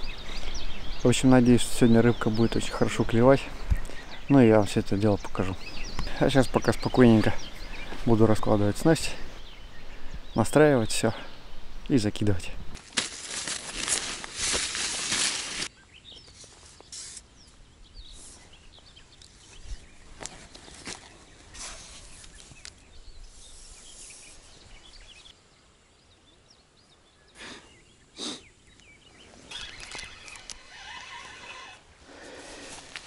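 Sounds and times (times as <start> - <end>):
birds chirping: 0.0 - 33.0
loud fabric rustle: 12.8 - 15.7.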